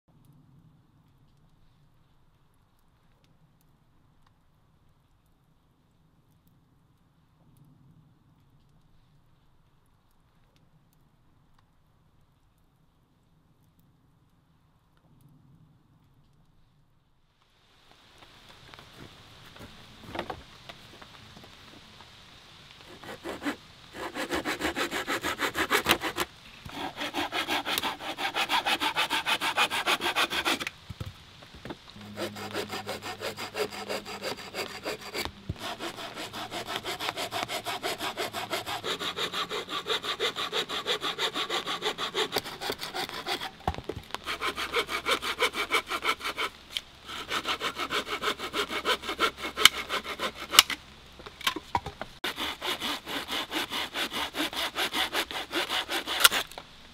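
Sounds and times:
hand saw cutting wood: 0:22.8 - 0:30.7, 0:32.0 - 0:50.8, 0:52.2 - 0:56.6.

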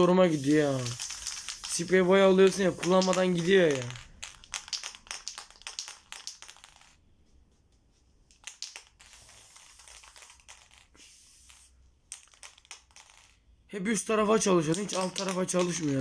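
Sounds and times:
paint spraying hiss: 0:00.0 - 0:06.9, 0:08.4 - 0:11.8
spray can mixing ball rattling: 0:00.0 - 0:07.0, 0:08.2 - 0:13.5, 0:14.4 - 0:16.0.

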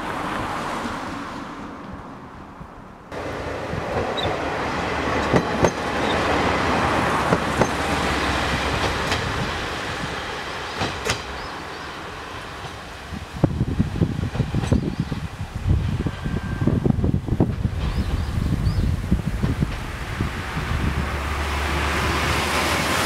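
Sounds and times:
diesel railcar engine rumbling: 0:00.0 - 0:23.0
train wheels clicking over rail joints: 0:03.2 - 0:16.1, 0:16.7 - 0:21.0.

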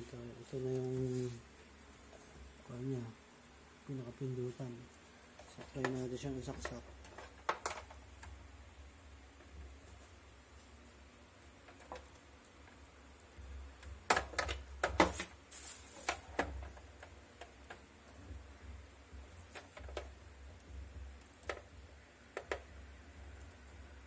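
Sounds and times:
low steady hum: 0:00.0 - 0:24.0
power cord clicks and taps: 0:22.3 - 0:22.7.

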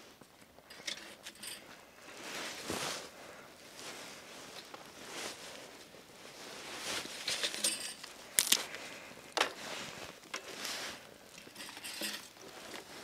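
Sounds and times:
dry twigs crackling and snapping: 0:07.1 - 0:10.5.

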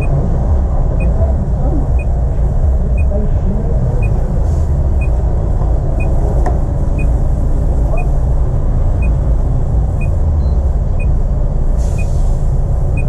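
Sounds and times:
turn signal ticking: 0:00.0 - 0:03.2, 0:04.0 - 0:05.3, 0:06.0 - 0:07.3, 0:08.9 - 0:09.3, 0:10.0 - 0:11.2
car engine idling: 0:00.0 - 0:13.0.

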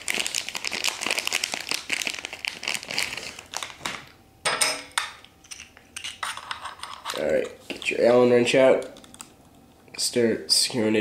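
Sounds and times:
packaging crinkling and rustling: 0:00.0 - 0:04.2.

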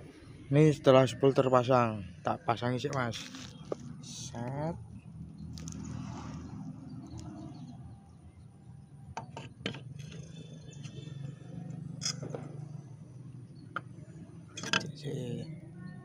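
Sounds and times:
metal cover clicking against engine: 0:14.6 - 0:14.9.

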